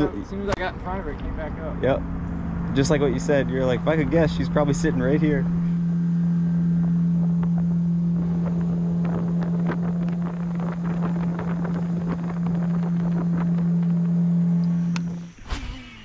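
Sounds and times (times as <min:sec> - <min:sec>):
electric motor humming: 0:01.2 - 0:16.0.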